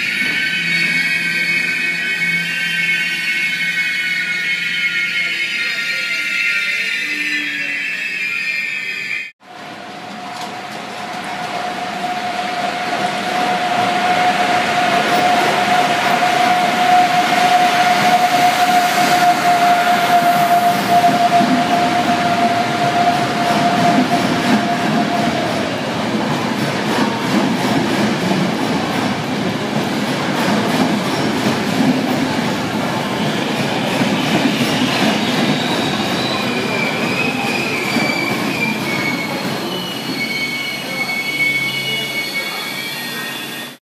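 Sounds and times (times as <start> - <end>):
high brake squeals: 0.0 - 9.3, 13.4 - 25.4, 33.2 - 43.8
train wheels rumbling on rails: 9.4 - 43.8.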